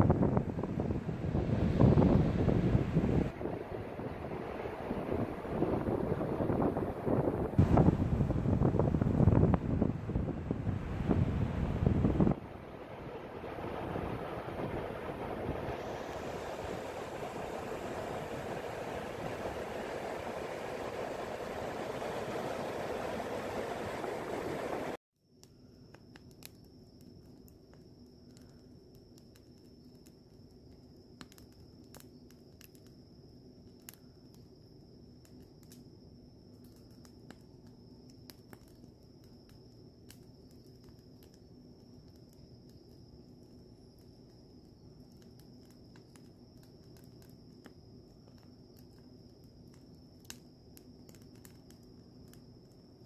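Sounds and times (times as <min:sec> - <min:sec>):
campfire crackling: 0:00.0 - 0:53.0
sharp pops of fire: 0:06.6 - 0:10.3, 0:25.3 - 0:34.6, 0:35.2 - 0:53.0
insect trill: 0:25.2 - 0:53.0.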